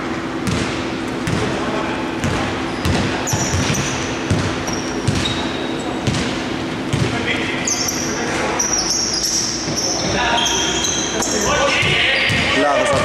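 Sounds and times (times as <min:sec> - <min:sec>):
basketball bouncing on wooden court: 0:00.4 - 0:01.5, 0:02.2 - 0:07.2, 0:11.7 - 0:13.0
sneaker squeaks on floor: 0:02.2 - 0:13.0.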